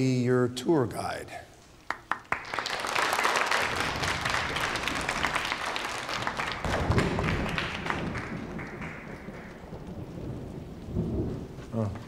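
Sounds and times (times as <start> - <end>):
crowd applauding: 1.9 - 10.1.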